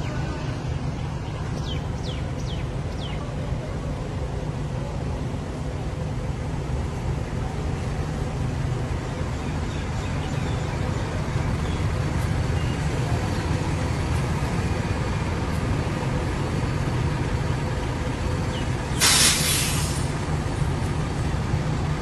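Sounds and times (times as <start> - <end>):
coach engines rumbling: 0.0 - 22.0
traffic noise: 0.0 - 22.0
loud burst of hiss: 19.0 - 20.2.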